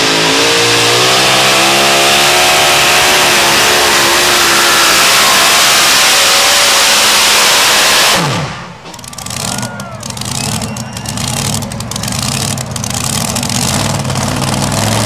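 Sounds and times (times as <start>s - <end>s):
truck engine idling: 8.2s - 15.0s.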